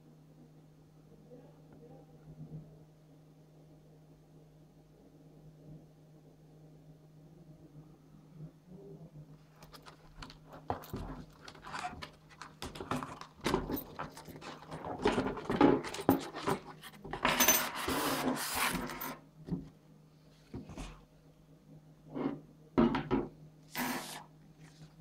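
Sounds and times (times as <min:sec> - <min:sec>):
paper sheet scraping rustle: 0:17.7 - 0:19.0, 0:23.7 - 0:25.0.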